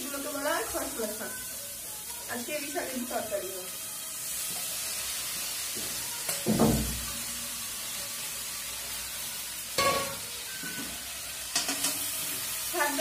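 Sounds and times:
greens sizzling in hot oil: 0:00.0 - 0:13.0.

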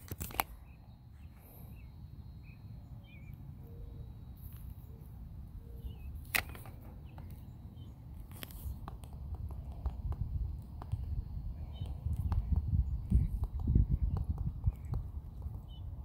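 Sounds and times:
wind: 0:00.0 - 0:16.0
bird chirps: 0:00.5 - 0:08.1, 0:11.0 - 0:16.0
sharp clicks: 0:06.2 - 0:07.4
microphone handling rumble: 0:09.2 - 0:16.0.

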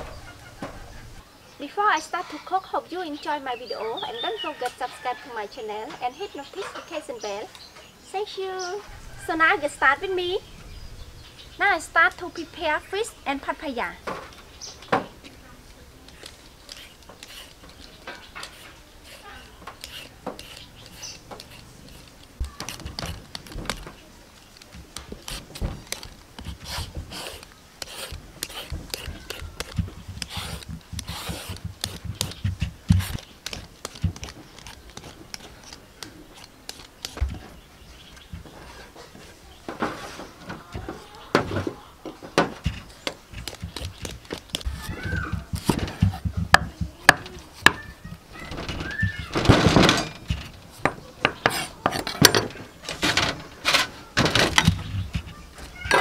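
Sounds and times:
knife scraping fruit skin: 0:16.0 - 0:41.1, 0:42.4 - 0:49.4, 0:50.1 - 0:56.0
fruit knocking on wooden board: 0:28.1 - 0:34.4, 0:40.7 - 0:48.2.

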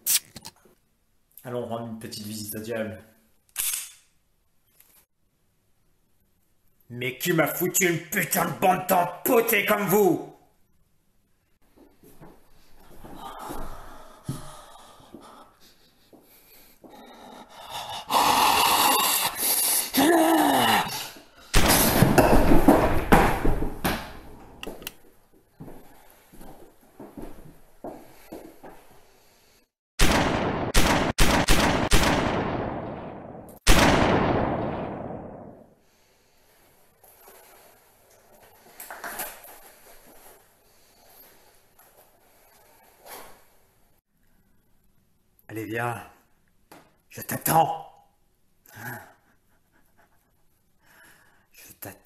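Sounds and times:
man breathing heavily: 0:12.5 - 0:20.0, 0:50.7 - 0:51.6
man screaming hoarsely: 0:19.9 - 0:21.2
pistol gunshots with echo: 0:30.0 - 0:35.6.

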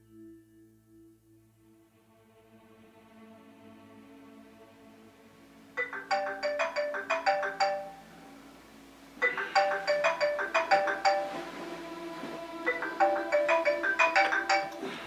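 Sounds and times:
soft sustained music tones: 0:00.0 - 0:15.0
phone ringtone melody: 0:05.8 - 0:08.4, 0:09.2 - 0:11.5, 0:12.6 - 0:15.0.

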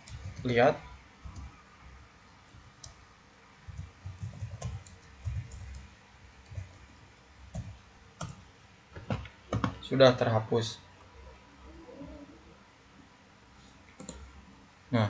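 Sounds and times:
keyboard typing: 0:00.0 - 0:01.6, 0:02.5 - 0:03.0, 0:03.6 - 0:06.9, 0:07.5 - 0:08.4, 0:09.0 - 0:09.8, 0:13.9 - 0:14.3.

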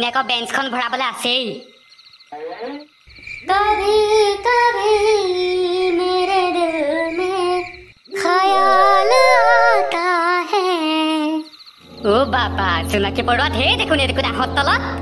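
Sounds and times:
person singing slow melody: 0:08.3 - 0:10.0.

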